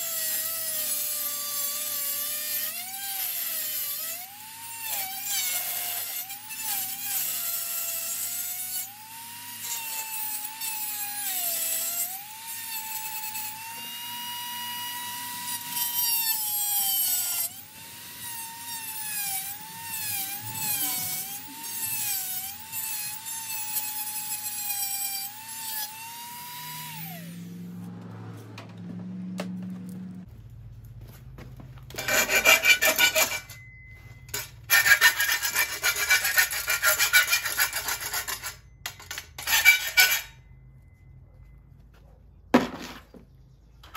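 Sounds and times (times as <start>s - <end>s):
rotary tool motor whine: 0.0s - 28.8s
cut-off wheel grinding metal: 0.0s - 30.3s, 31.9s - 40.9s.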